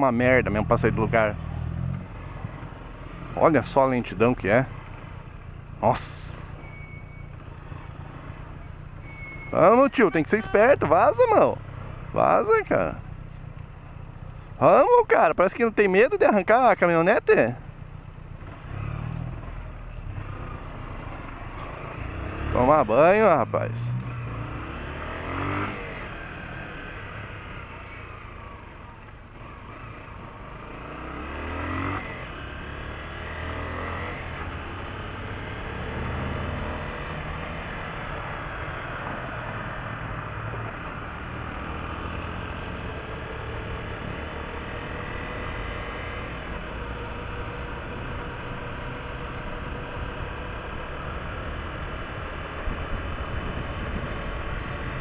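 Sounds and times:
motorcycle engine accelerating: 0:00.0 - 0:13.4, 0:18.2 - 0:55.0.

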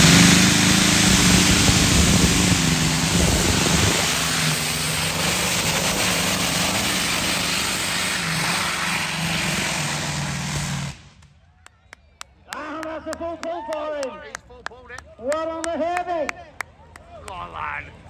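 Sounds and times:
tractor engine at full power: 0:00.0 - 0:11.4.

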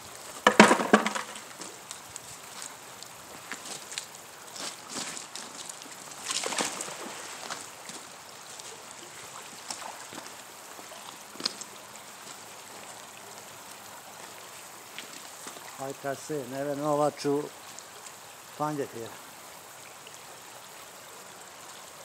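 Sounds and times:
flowing water: 0:00.0 - 0:22.0
magnet splashing into creek: 0:00.4 - 0:01.7, 0:04.8 - 0:07.7.

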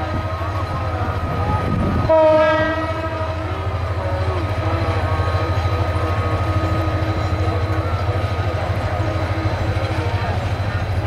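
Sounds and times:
train passing rumble: 0:00.0 - 0:11.0
locomotive horn: 0:02.1 - 0:03.8.

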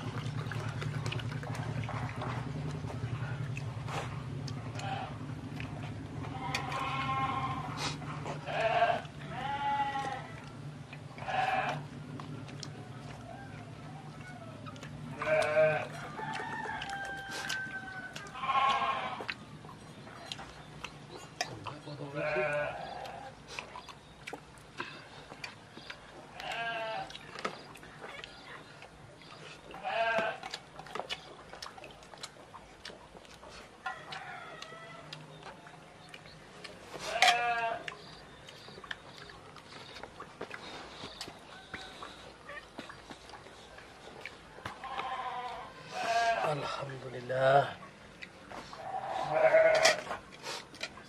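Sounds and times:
steady low hum: 0:00.0 - 0:17.0
animals bleating: 0:04.6 - 0:05.3, 0:06.1 - 0:10.4, 0:11.2 - 0:12.1, 0:15.1 - 0:16.0, 0:17.0 - 0:19.3, 0:21.7 - 0:23.4, 0:26.3 - 0:27.2, 0:29.7 - 0:30.5, 0:37.0 - 0:38.2, 0:44.7 - 0:47.8, 0:48.6 - 0:50.2.

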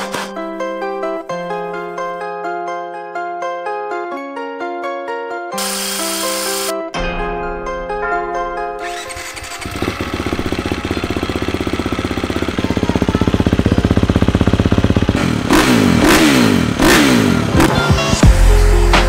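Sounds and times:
motocross bike idling and revving: 0:09.0 - 0:18.7
music with heavy bass: 0:15.1 - 0:19.0.

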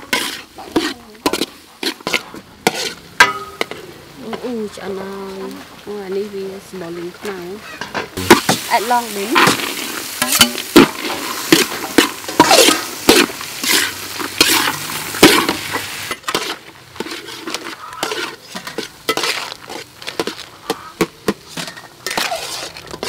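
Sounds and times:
metal spatula scraping in wok: 0:00.0 - 0:04.7, 0:07.8 - 0:23.0
food sizzling in wok: 0:00.0 - 0:23.0
crabs clattering in wok: 0:07.8 - 0:23.0.

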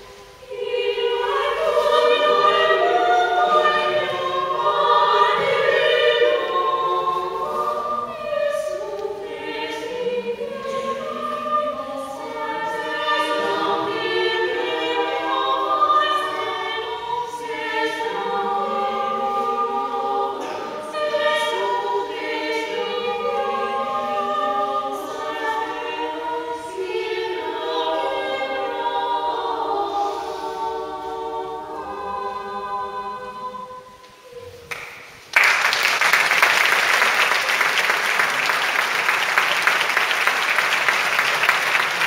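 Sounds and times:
women's choir singing a cappella: 0:00.0 - 0:34.7
audience applause: 0:34.7 - 0:42.0.

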